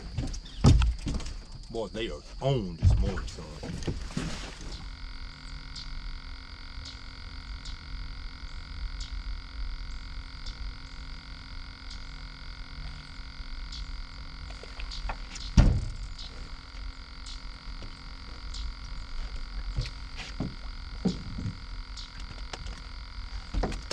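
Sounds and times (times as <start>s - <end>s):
frog chorus: 2.4s - 23.9s
loud thump: 15.5s - 16.1s.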